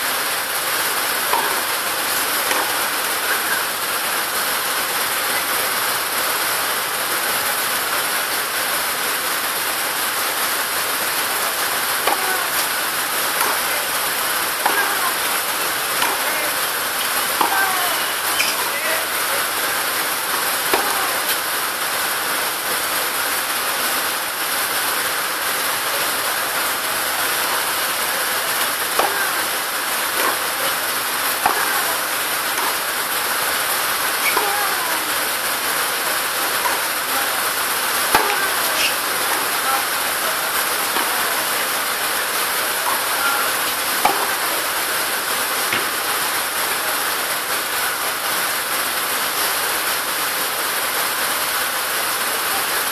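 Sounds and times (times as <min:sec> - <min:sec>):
steady loud hiss: 0:00.0 - 0:52.9
tennis ball struck by racket: 0:01.3 - 0:01.7, 0:02.4 - 0:03.6, 0:12.0 - 0:12.7, 0:13.3 - 0:13.9, 0:14.6 - 0:19.2, 0:20.3 - 0:21.4, 0:28.9 - 0:29.5, 0:30.1 - 0:30.6, 0:31.4 - 0:32.0, 0:38.1 - 0:39.6, 0:44.0 - 0:44.5.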